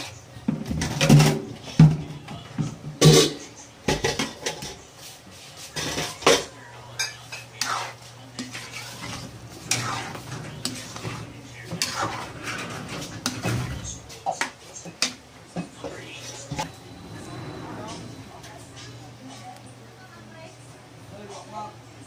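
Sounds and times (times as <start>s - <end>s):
utensil scraping metal pot: 5.7s - 15.2s.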